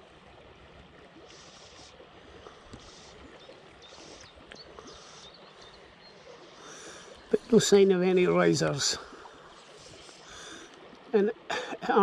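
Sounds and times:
river flowing around legs: 0.0s - 12.0s.

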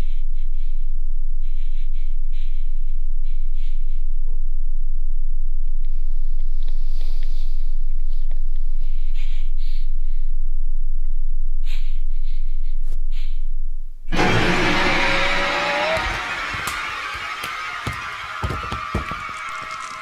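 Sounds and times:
muffled shaky breaths and sniffles: 0.0s - 4.4s, 5.8s - 10.5s, 11.6s - 13.7s
deep low drone: 14.1s - 20.0s.

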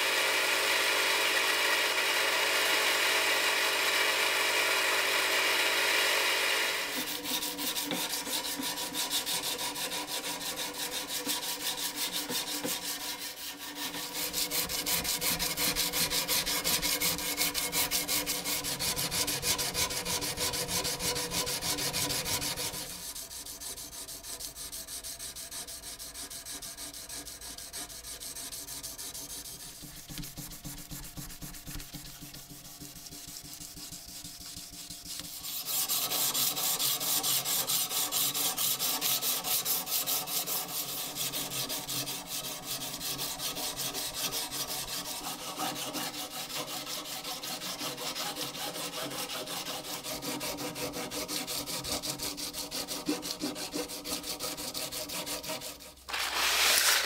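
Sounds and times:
abrasive scraping on steel blade: 56.1s - 57.0s.

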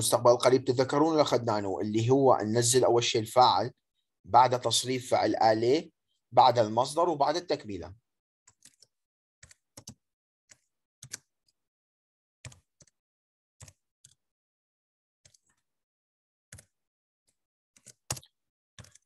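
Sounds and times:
keyboard keys typing: 8.5s - 11.3s, 12.4s - 13.0s, 17.8s - 19.0s.

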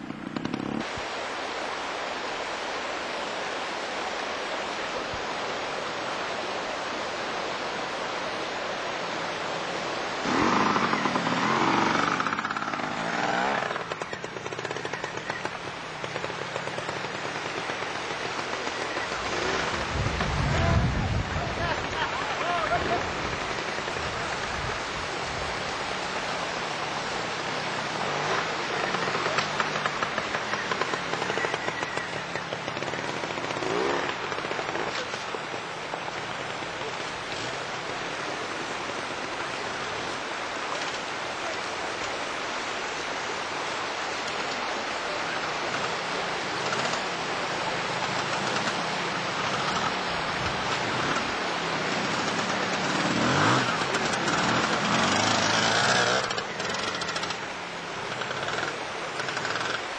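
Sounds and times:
motorcycle engines revving: 0.0s - 1.1s, 9.0s - 59.9s.

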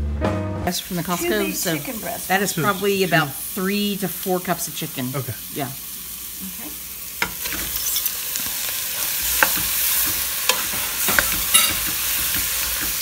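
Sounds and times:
frying sizzle: 0.7s - 13.0s
utensils clinking and scraping pot: 7.2s - 13.0s.

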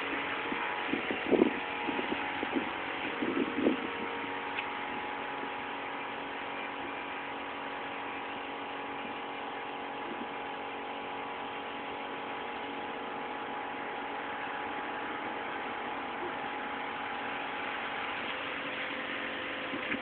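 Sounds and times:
vehicle engine hum with whine: 0.0s - 20.0s
wash of water noise: 0.0s - 20.0s.

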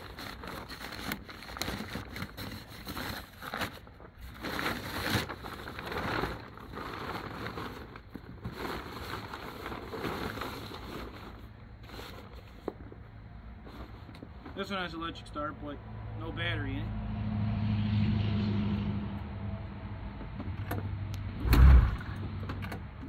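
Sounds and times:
fabric cover rustling: 0.0s - 13.0s.

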